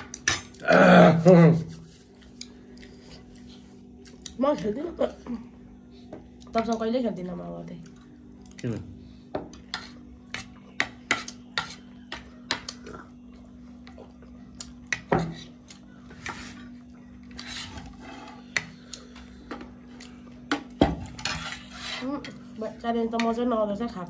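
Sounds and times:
cutlery scraping on plastic plate: 0:21.0 - 0:22.3.

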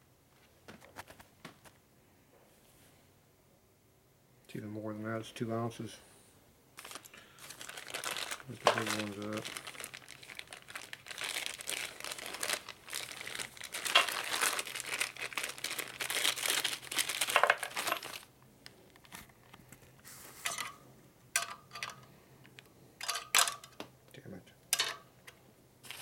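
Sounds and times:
plastic bags crinkling: 0:06.8 - 0:20.8.

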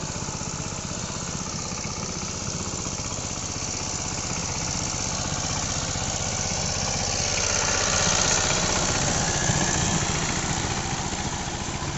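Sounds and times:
diesel engine running: 0:00.0 - 0:11.9.

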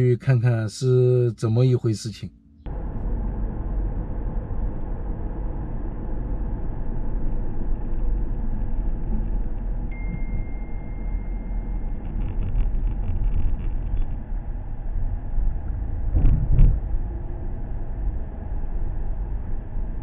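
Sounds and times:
vehicle road and engine rumble: 0:00.0 - 0:20.0
thin high beep: 0:09.9 - 0:11.9.

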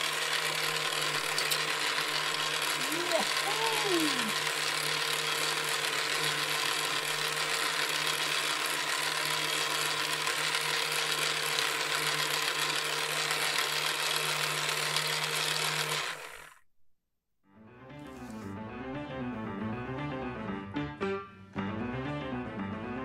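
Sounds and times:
toy motor and gears whirring: 0:00.0 - 0:16.6.

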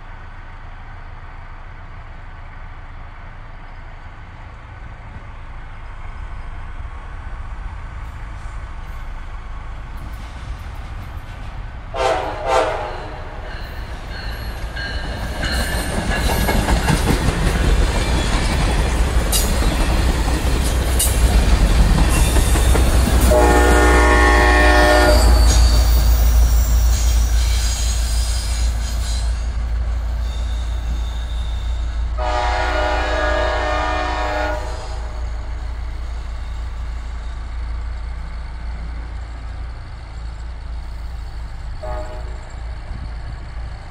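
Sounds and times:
train rumble and wheel clatter: 0:00.0 - 0:43.9
train horn: 0:11.9 - 0:13.7, 0:23.1 - 0:26.0, 0:32.1 - 0:35.4, 0:41.8 - 0:42.5.

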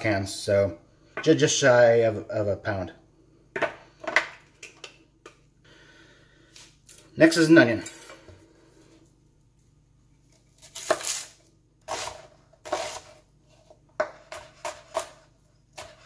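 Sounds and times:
knife chopping on cutting board: 0:11.9 - 0:13.1, 0:14.0 - 0:16.0.

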